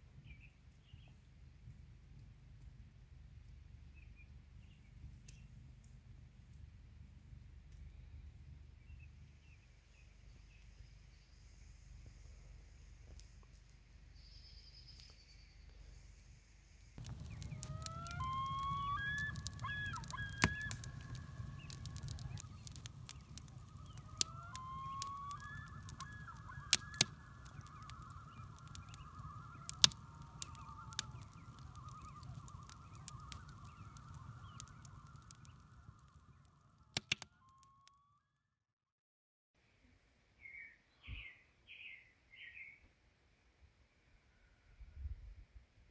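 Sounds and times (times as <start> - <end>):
sharp clicks: 17.0 - 36.2, 36.9 - 37.3
geese honking: 17.1 - 35.2.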